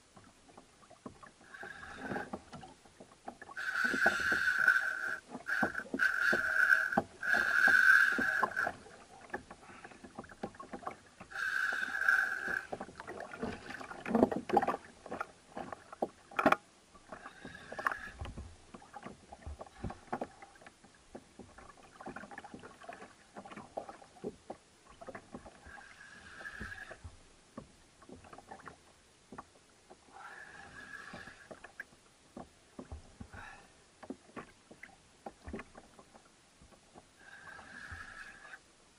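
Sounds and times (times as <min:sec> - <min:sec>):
water splashing against kayak: 0:00.0 - 0:38.7
fishing reel drag buzzing: 0:03.6 - 0:08.8, 0:11.3 - 0:12.8.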